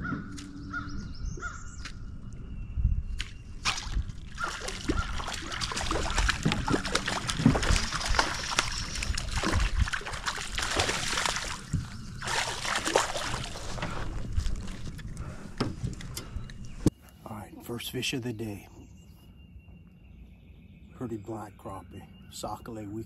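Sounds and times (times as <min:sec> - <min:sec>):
fish splashing at water surface: 0:03.6 - 0:14.0.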